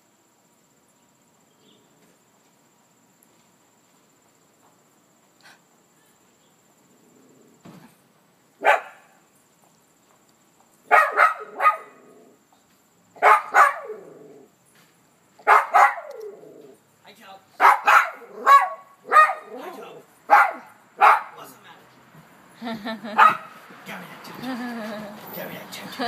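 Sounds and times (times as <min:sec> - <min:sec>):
small dog barking: 0:08.6 - 0:09.2, 0:10.9 - 0:12.2, 0:13.2 - 0:14.4, 0:15.4 - 0:16.5, 0:17.6 - 0:21.4, 0:23.2 - 0:23.6.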